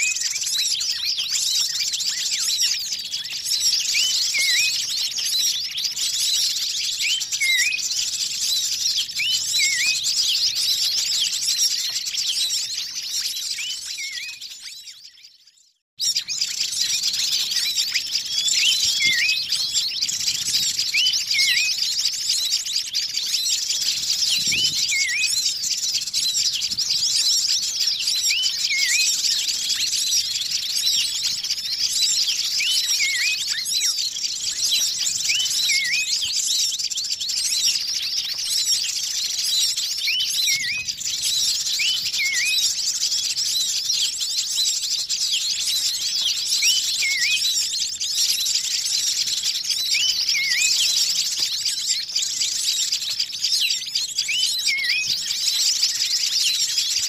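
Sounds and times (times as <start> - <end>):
small birds twittering: 0.0 - 57.0.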